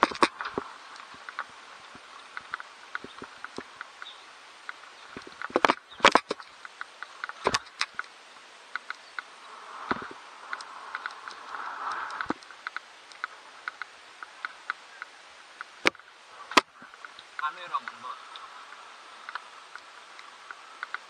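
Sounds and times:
bike rattling over rough pavement: 0.0s - 4.2s.

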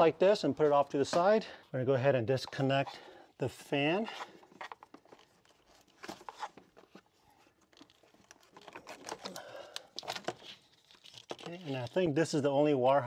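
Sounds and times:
plastic rustling: 4.1s - 12.3s.

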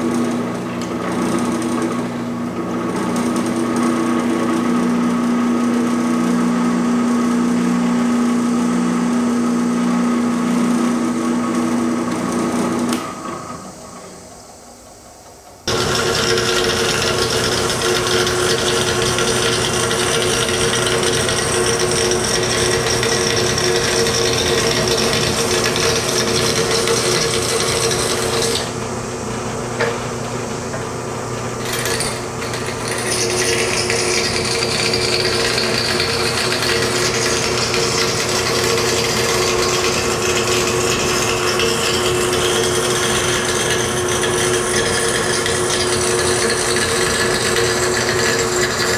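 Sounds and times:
bandsaw cutting steel: 15.7s - 28.8s, 31.6s - 48.9s.

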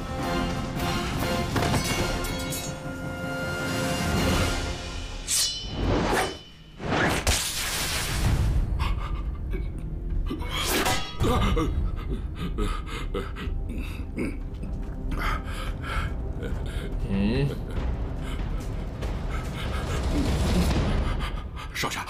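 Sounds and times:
soundtrack music: 0.0s - 7.0s, 7.9s - 22.0s
sharp sword hits: 5.2s - 6.8s
sword whooshes: 5.2s - 8.2s.

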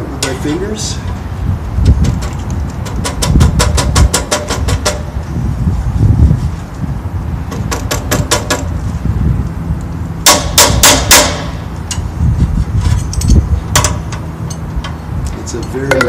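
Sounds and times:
wrench tapping on metal bolts: 2.0s - 5.1s, 13.0s - 16.0s.

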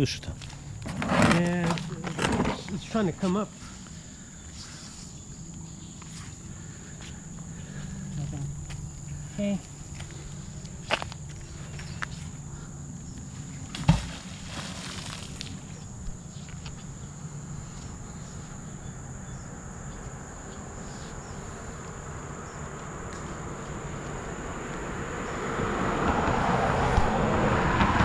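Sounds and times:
high hum of insects: 0.0s - 28.0s
heavy splash in water: 13.8s - 15.4s
vehicle approaching: 14.5s - 28.0s.

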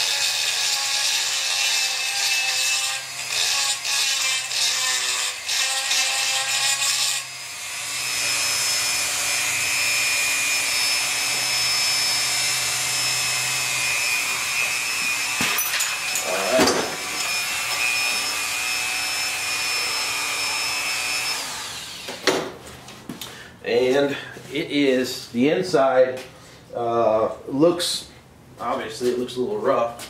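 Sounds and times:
rotary tool grinding metal: 0.0s - 22.2s.

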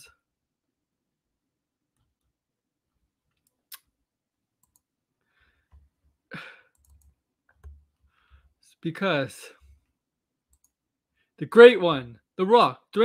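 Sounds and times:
faint clicks: 4.6s - 4.8s, 10.5s - 10.8s
breaths close to microphone: 8.0s - 8.6s.

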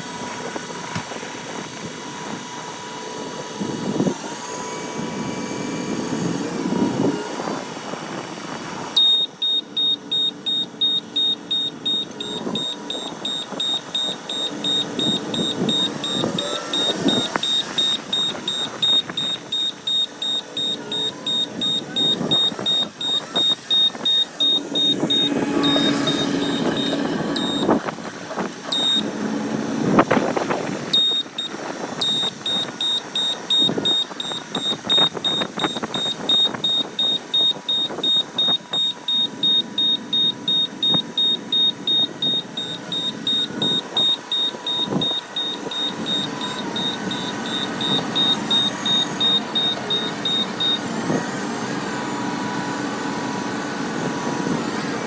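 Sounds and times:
diesel engine running: 0.0s - 55.0s
backup alarm beeping: 9.0s - 27.8s, 28.7s - 29.1s, 31.0s - 50.8s.

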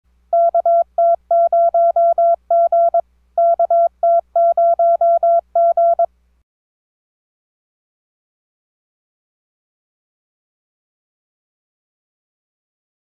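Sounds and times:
morse code beeps: 0.4s - 6.1s.

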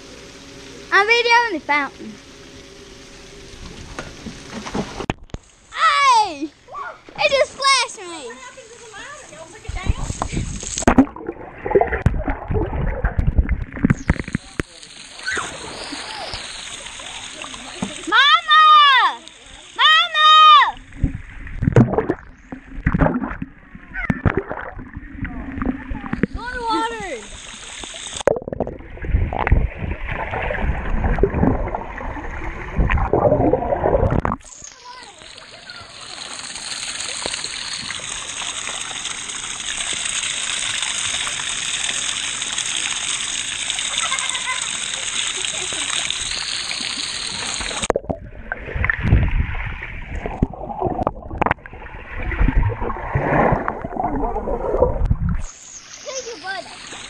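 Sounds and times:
dull thumps from swimmers: 3.6s - 5.3s
underwater gurgling of moving water: 9.8s - 18.1s, 20.8s - 55.8s.

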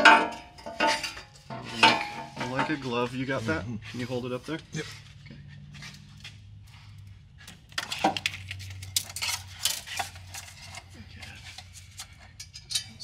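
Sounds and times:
metal parts clinking: 7.7s - 10.9s, 11.5s - 13.0s.

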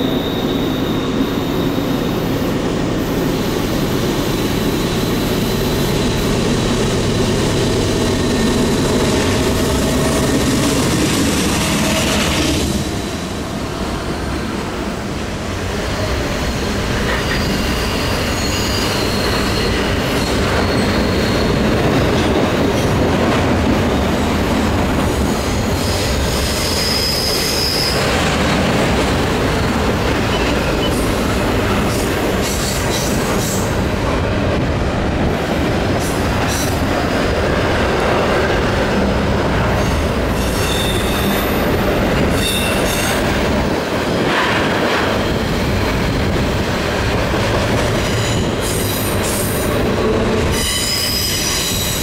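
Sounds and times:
steel wheels rumbling on rail: 0.0s - 52.0s
high-pitched wheel squeals: 17.1s - 21.6s, 25.7s - 28.1s, 40.4s - 41.6s, 50.5s - 52.0s.

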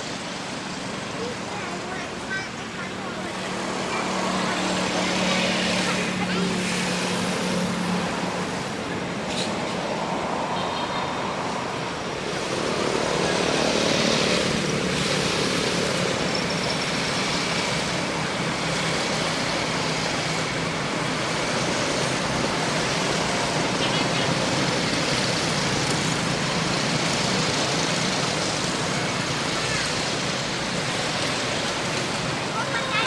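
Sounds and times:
steady rushing background noise: 0.0s - 33.0s.

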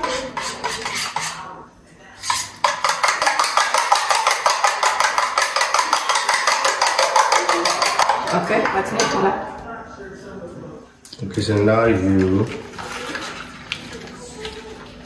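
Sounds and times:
fork beating eggs in ceramic bowl: 0.0s - 1.5s, 2.2s - 9.0s.

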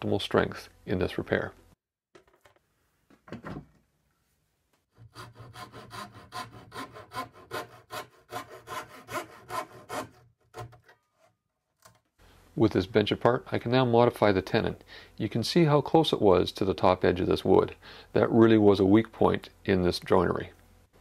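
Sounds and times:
hand saw cutting wood: 5.0s - 11.3s.

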